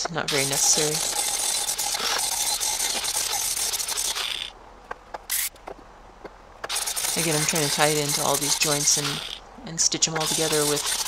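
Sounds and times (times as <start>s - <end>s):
grinder grinding on steel: 0.0s - 4.5s, 6.7s - 9.4s, 10.2s - 11.0s.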